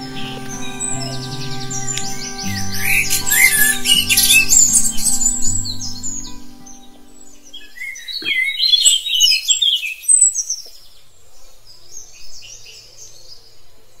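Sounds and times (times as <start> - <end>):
birds chirping and singing: 0.0 - 10.8.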